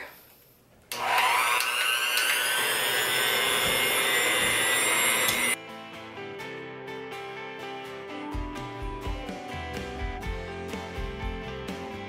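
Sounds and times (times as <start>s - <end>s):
electric hand mixer whirring: 0.9s - 5.6s.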